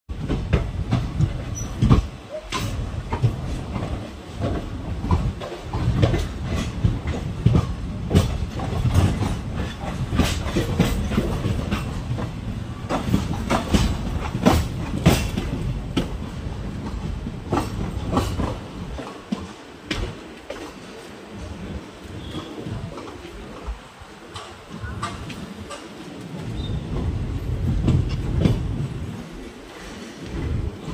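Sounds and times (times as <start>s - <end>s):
train low rumble: 0.1s - 30.9s
wheels clacking over rail joints: 0.1s - 30.9s.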